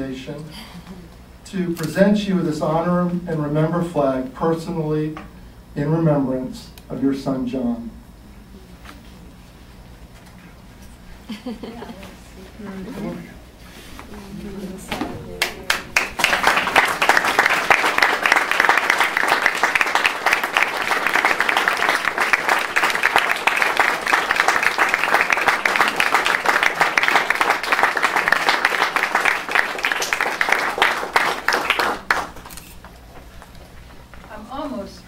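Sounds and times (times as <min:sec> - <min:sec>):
audience applauding: 0:15.3 - 0:32.5.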